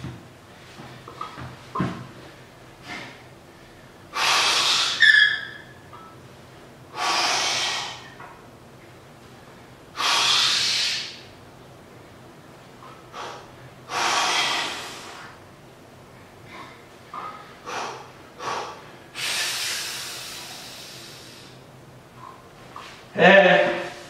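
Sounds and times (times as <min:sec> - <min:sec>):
man breathing heavily: 0:06.9 - 0:08.2, 0:13.0 - 0:15.4, 0:16.3 - 0:22.5.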